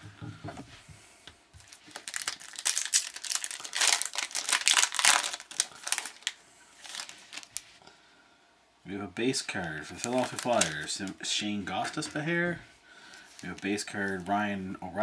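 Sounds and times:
foil wrapper crinkling: 0:01.6 - 0:07.8, 0:09.5 - 0:11.2, 0:13.0 - 0:14.4.

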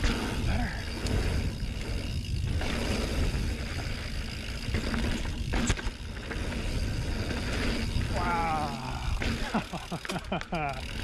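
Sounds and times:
wind rushing over microphone: 0:00.0 - 0:05.6
bike tyres on dirt: 0:00.0 - 0:11.0
sharp clack from bike: 0:04.7 - 0:06.1.

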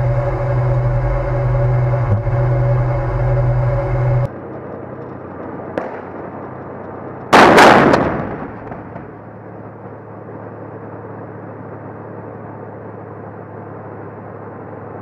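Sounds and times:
tank engine running: 0:00.0 - 0:15.0
tank gun firing blast: 0:05.8 - 0:06.4, 0:07.3 - 0:09.3.

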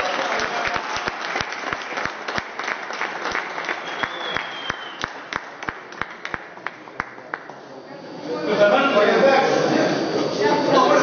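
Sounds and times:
people applauding: 0:00.0 - 0:07.7.

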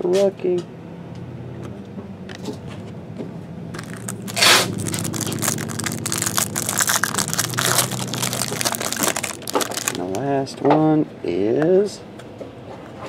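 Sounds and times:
plastic wrapper ripping: 0:03.8 - 0:10.2
wrapper crinkling: 0:03.8 - 0:10.3.

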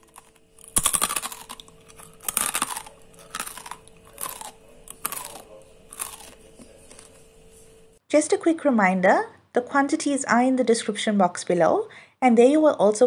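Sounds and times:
crunching crispy snack: 0:00.0 - 0:07.2.

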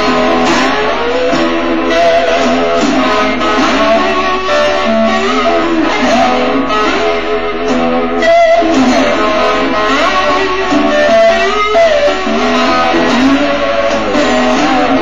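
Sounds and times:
electric guitar sliding notes: 0:00.0 - 0:15.0.

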